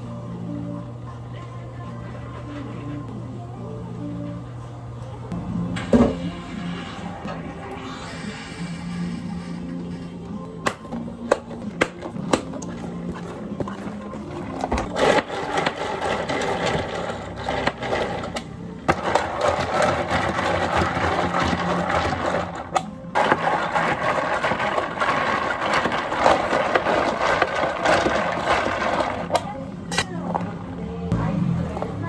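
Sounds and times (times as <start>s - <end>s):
drink machine rushing and clattering: 10.7s - 29.6s.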